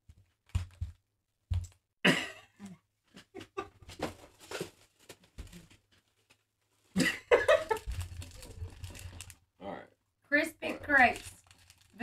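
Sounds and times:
person coughing: 0:02.0 - 0:02.8.

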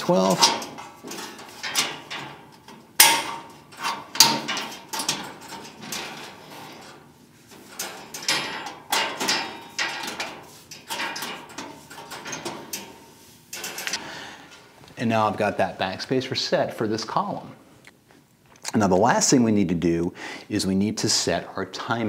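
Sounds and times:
metal clanks and scrapes: 0:00.0 - 0:14.0.

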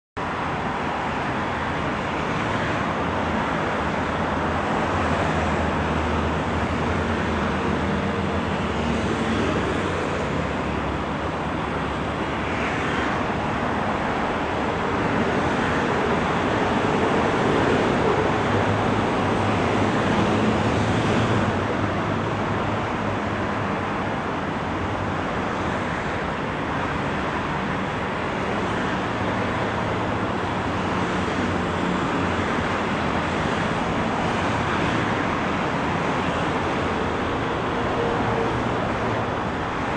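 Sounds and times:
highway traffic noise: 0:00.2 - 0:39.9.

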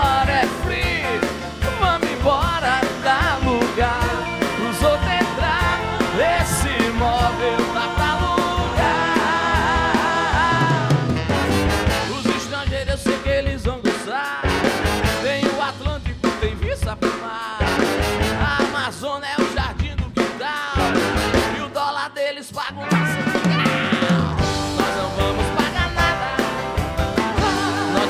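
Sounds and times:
electric guitars: 0:00.0 - 0:12.7, 0:22.8 - 0:28.0
horn section: 0:00.0 - 0:12.8, 0:14.3 - 0:15.9, 0:17.6 - 0:19.0, 0:20.7 - 0:22.0
drums: 0:00.0 - 0:28.0
man singing: 0:00.0 - 0:28.0.

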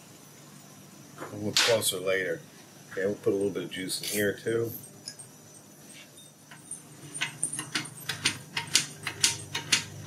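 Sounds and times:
hand tools clicking on metal: 0:06.5 - 0:10.0.

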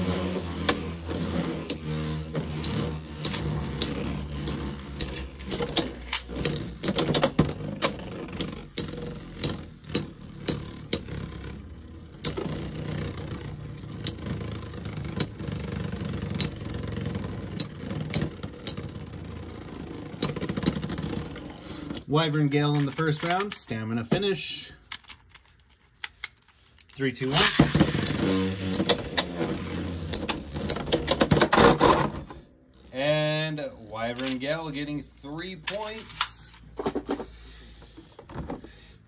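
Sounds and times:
spinning tops whirring: 0:00.0 - 0:22.1, 0:27.2 - 0:33.1
spinning tops clacking together: 0:35.6 - 0:36.8.

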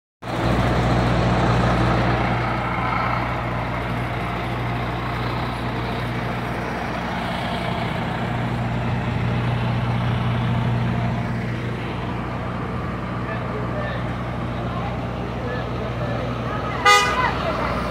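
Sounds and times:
diesel truck engine idling: 0:00.2 - 0:17.9.

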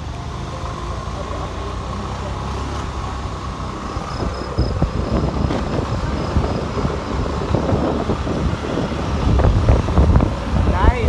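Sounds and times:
vehicle road noise: 0:00.0 - 0:11.0
wind buffeting microphone: 0:03.6 - 0:11.0.

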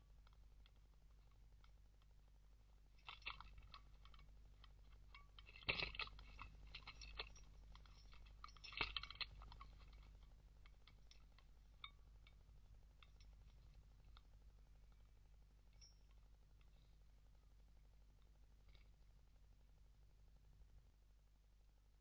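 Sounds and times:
feeder crunchy rattles: 0:03.0 - 0:15.1.

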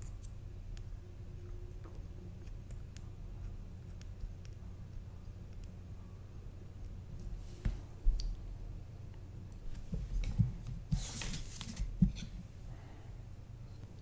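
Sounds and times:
faint low hum: 0:00.0 - 0:14.0
parts sliding rustle: 0:10.9 - 0:12.3.

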